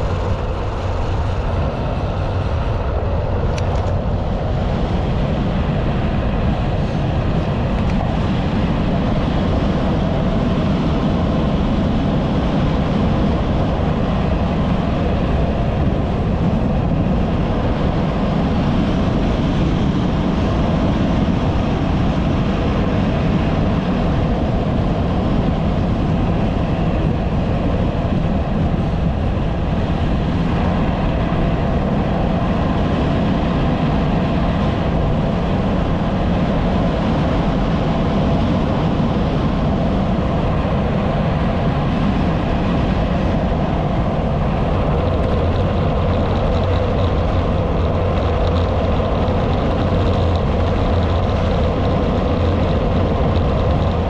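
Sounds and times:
wind rushing over microphone: 0.0 - 54.0
bicycle tyres on asphalt: 19.1 - 54.0.

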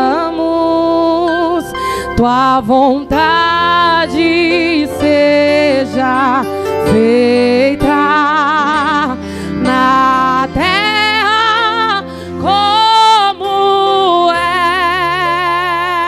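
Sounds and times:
guitar accompaniment: 0.0 - 16.0
woman singing gospel song: 0.0 - 16.0.

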